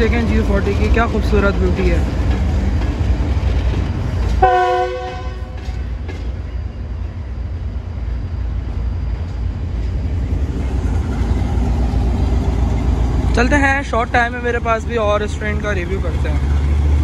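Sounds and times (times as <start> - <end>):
diesel locomotive rumble: 0.0 - 17.0
locomotive horn: 4.4 - 5.6.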